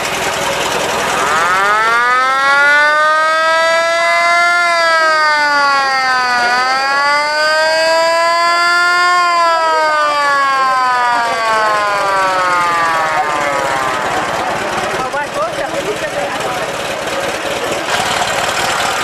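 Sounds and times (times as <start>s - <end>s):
siren-like wail: 0.9s - 15.1s.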